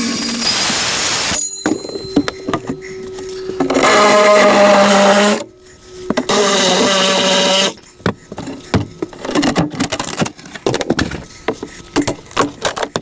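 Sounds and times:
power tool whine: 0:00.0 - 0:08.7
wood cracking and knocking: 0:08.1 - 0:13.0.

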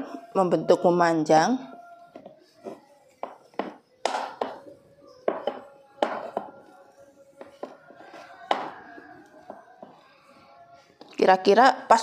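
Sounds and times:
rolling pin knocking on cutting board: 0:03.2 - 0:04.6, 0:05.2 - 0:06.5.

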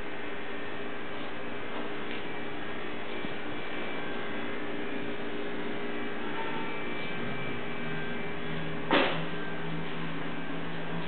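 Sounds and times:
steady background hum: 0:00.0 - 0:11.0
faint steady tones: 0:02.2 - 0:11.0.

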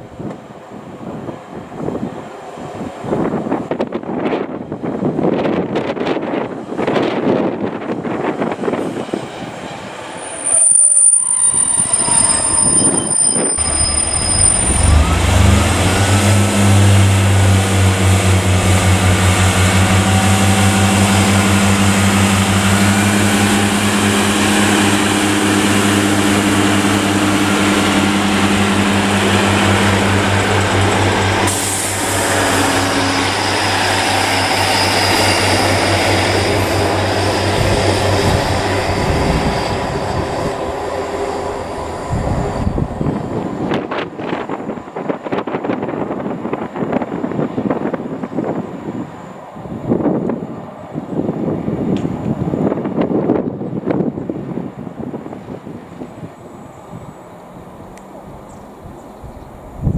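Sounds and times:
wheel and rail noise: 0:00.0 - 0:59.9
train wheel squeal: 0:10.1 - 0:16.1, 0:31.6 - 0:44.4
diesel engine drone: 0:13.4 - 0:45.5.

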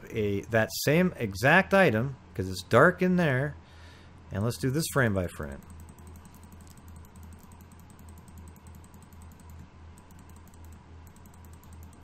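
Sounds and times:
low steady hum: 0:00.0 - 0:12.0
computer mouse clicks: 0:05.6 - 0:12.0.

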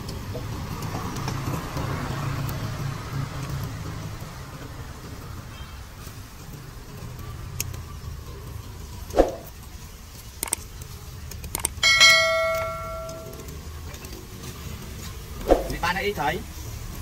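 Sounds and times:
metal object ringing when struck: 0:11.8 - 0:13.5.

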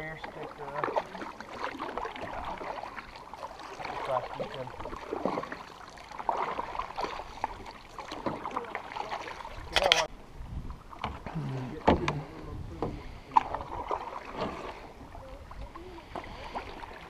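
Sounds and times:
paddles swishing and splashing water: 0:00.0 - 0:17.0.

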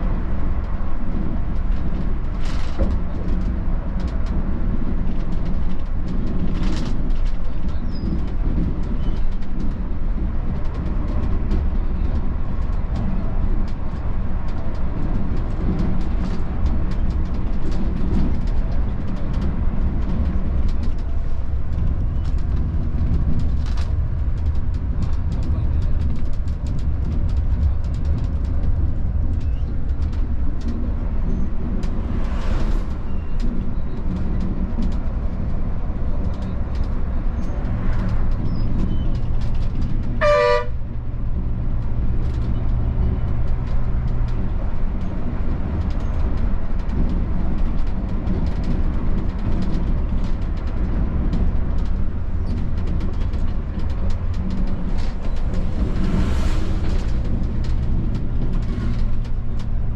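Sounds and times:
bus diesel engine running: 0:00.0 - 0:59.9
low road rumble: 0:00.0 - 0:59.9
horn toot: 0:40.2 - 0:40.8.

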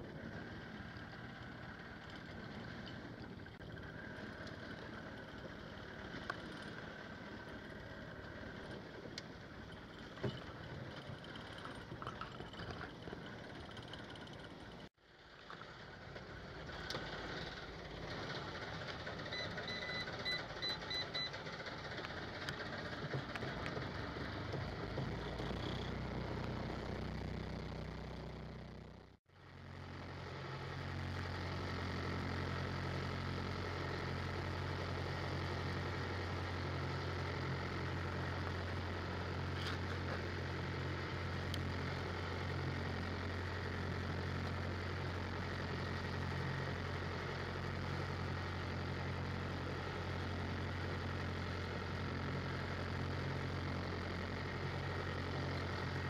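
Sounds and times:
boat engine humming: 0:00.0 - 0:56.0
short electronic beeps: 0:19.3 - 0:21.4.

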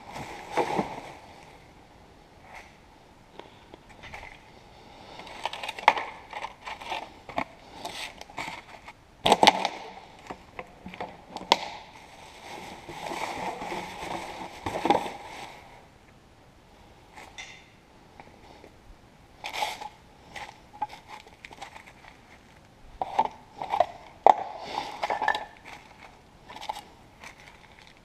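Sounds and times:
plastic bin bag rustling: 0:00.0 - 0:01.6, 0:05.1 - 0:15.8, 0:19.4 - 0:28.0.

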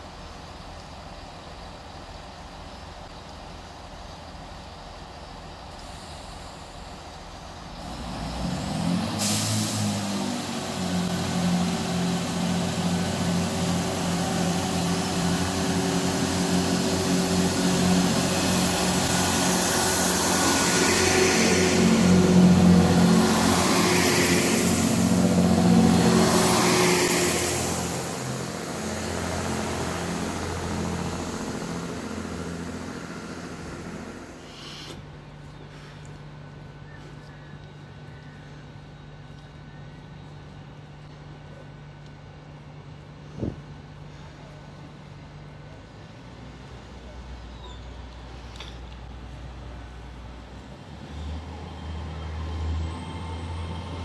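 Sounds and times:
train diesel engines running: 0:00.0 - 0:54.0
air hissing bursts: 0:09.2 - 0:10.0, 0:34.2 - 0:35.1.

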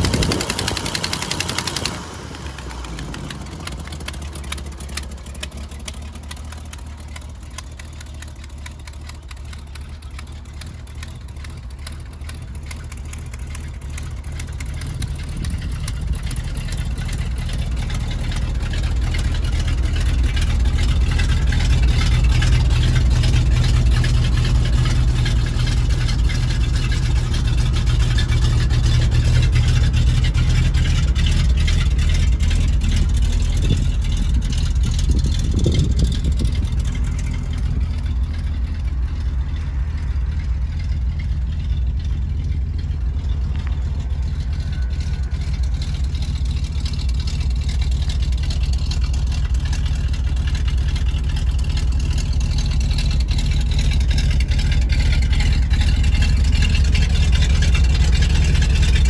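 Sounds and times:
truck engine running: 0:00.0 - 0:59.0.

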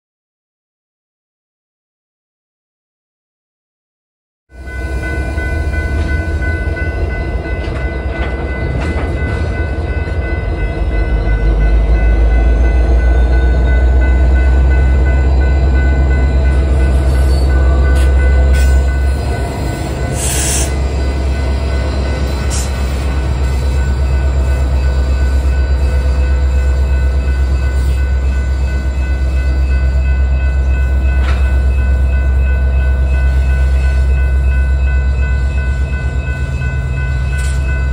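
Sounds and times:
crossing signal bell ringing: 0:04.5 - 0:37.9
diesel locomotive engine rumble: 0:04.5 - 0:37.9.

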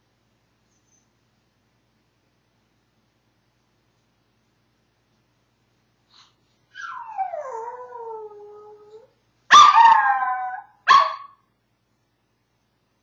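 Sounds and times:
dog howling: 0:06.8 - 0:09.1, 0:09.7 - 0:10.7
dog bark: 0:09.5 - 0:11.4.

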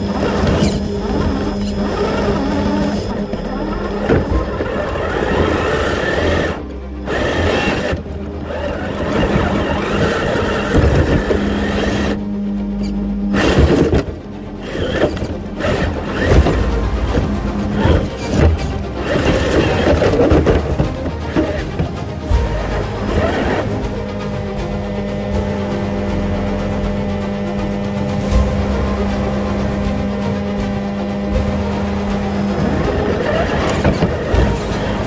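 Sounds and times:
toy car electric motor whining: 0:00.0 - 0:12.2, 0:12.8 - 0:21.9, 0:22.7 - 0:23.7, 0:32.4 - 0:35.0
background music: 0:00.0 - 0:35.0.

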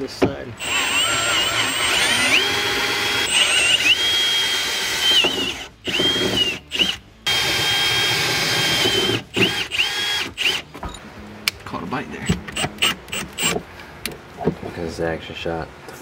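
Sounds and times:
cordless drill boring through steel: 0:00.6 - 0:10.6, 0:12.8 - 0:13.6.

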